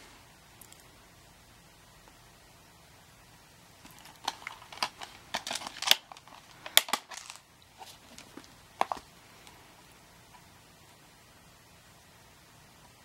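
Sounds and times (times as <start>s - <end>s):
plastic clicks of disc case: 3.9s - 9.1s.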